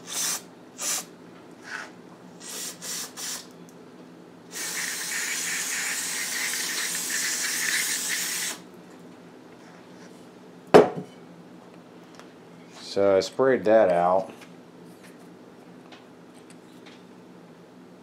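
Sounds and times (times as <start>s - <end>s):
aerosol spray hissing: 2.4s - 3.5s, 4.5s - 8.6s
aerosol spray puffs: 2.4s - 3.5s, 4.5s - 8.6s.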